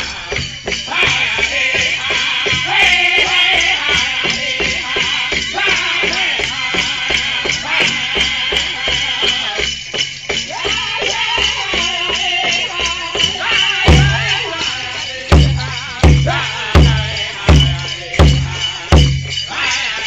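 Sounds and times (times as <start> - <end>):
bells jingling: 0.0 - 20.0
drum group singing: 0.0 - 20.0
steady beat on large drum: 13.2 - 14.6, 15.3 - 19.4
heavy low thumps: 15.4 - 19.3.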